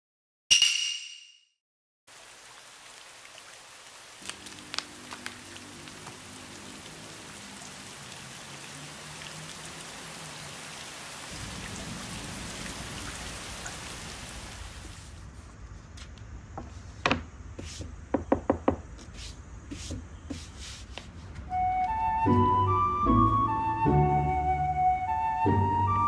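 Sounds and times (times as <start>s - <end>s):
steady rain hissing: 2.1s - 18.0s.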